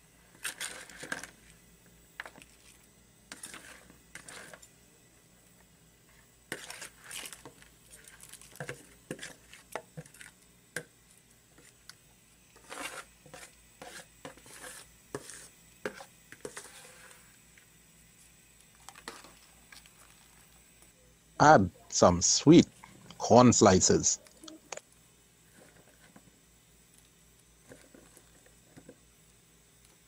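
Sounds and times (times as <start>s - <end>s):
metal spoon scraping plastic bowl: 12.6s - 17.2s.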